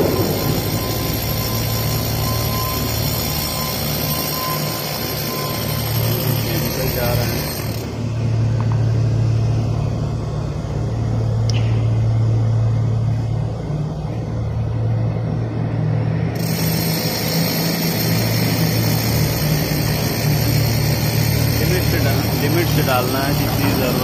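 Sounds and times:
motor humming: 16.2s - 24.0s.

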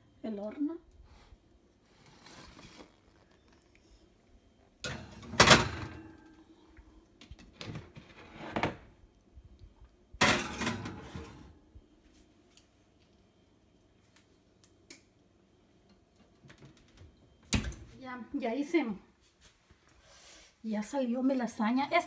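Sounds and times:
pans clattering: 10.2s - 11.5s
pans scraping on oven racks: 10.3s - 11.5s.

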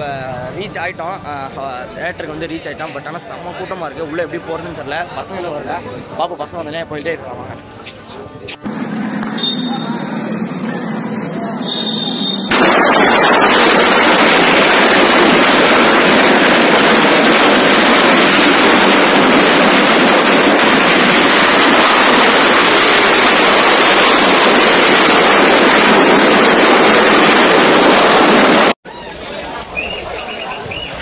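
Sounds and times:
firecrackers crackling: 11.6s - 28.8s.

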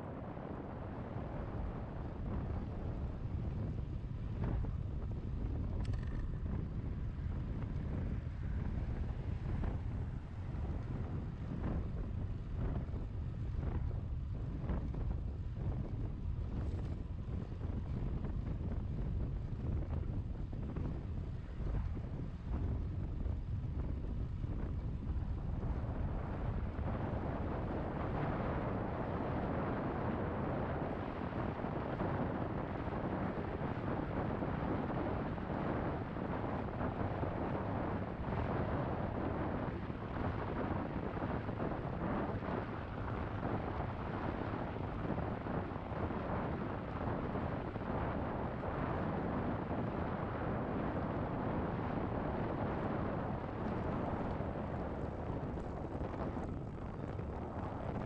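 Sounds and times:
wind buffeting microphone: 0.0s - 58.0s.

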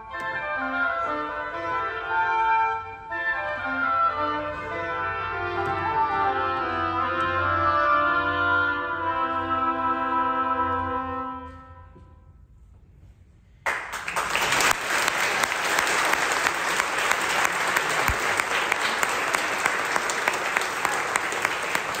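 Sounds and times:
oboe chord: 0.0s - 12.2s
audience applause: 13.7s - 22.0s.

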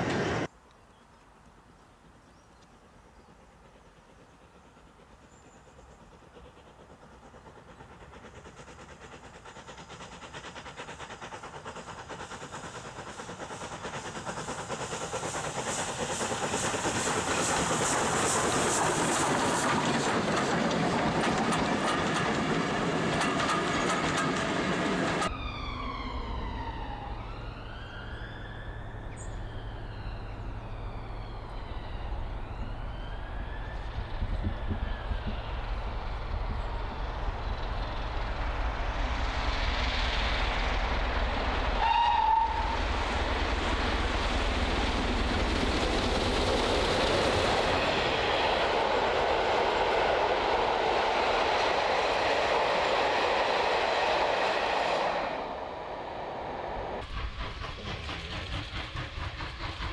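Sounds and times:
steam exhaust beat: 3.3s - 25.3s, 33.2s - 59.9s
wheels clattering over rail joints: 16.8s - 25.3s
siren-like gliding tone: 25.3s - 35.4s.

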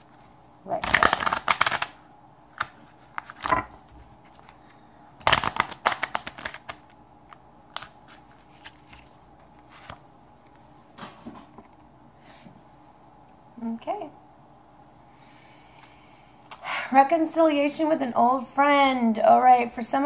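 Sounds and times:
cards being shuffled: 0.0s - 10.7s
cards clicking and tapping: 0.8s - 4.5s, 5.2s - 9.0s.

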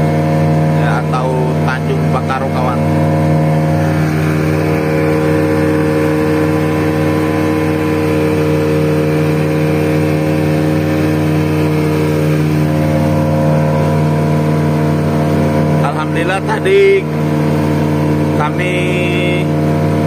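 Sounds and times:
boat engine running: 0.0s - 20.0s
water rushing: 0.0s - 20.0s.

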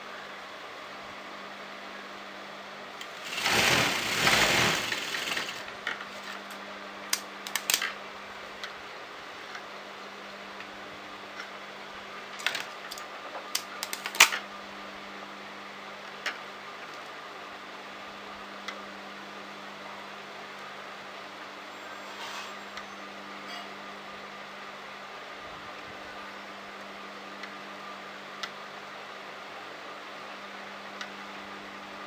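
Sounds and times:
sewing machine stitching: 3.0s - 5.7s.

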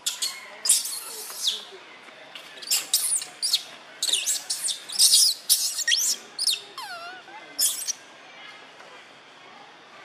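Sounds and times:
baby monkey squealing: 0.0s - 1.6s, 2.6s - 8.0s.

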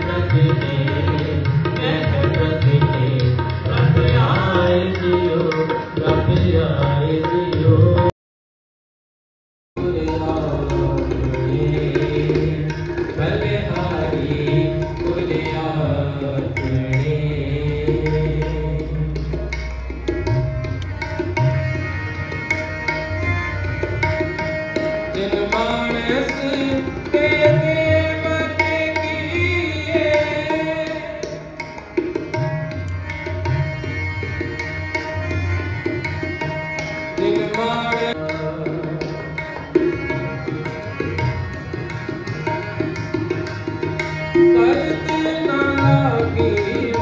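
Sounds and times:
tabla strokes: 0.0s - 8.1s, 9.8s - 47.0s
harmonium chords: 9.8s - 47.0s.

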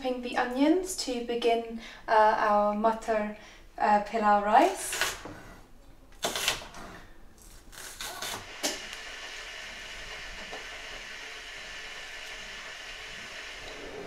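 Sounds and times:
steady hiss: 8.0s - 14.0s.

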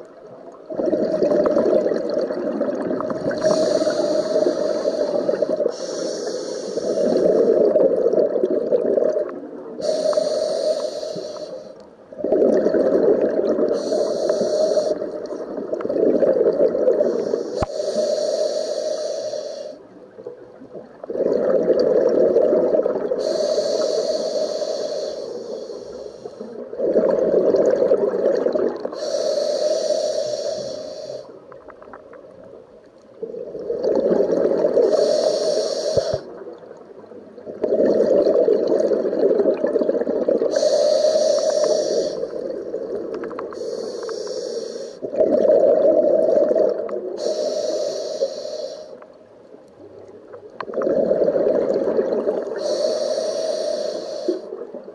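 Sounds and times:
diver exhaling bubbles: 0.7s - 10.4s, 12.2s - 18.1s, 20.8s - 31.2s, 33.2s - 36.6s, 37.5s - 48.7s, 50.6s - 54.7s
regulator hiss: 3.3s - 7.5s, 9.8s - 11.8s, 13.7s - 15.2s, 17.0s - 19.9s, 23.2s - 26.6s, 28.9s - 31.4s, 34.8s - 36.4s, 40.5s - 42.7s, 43.3s - 45.1s, 47.2s - 49.0s, 52.5s - 54.6s.

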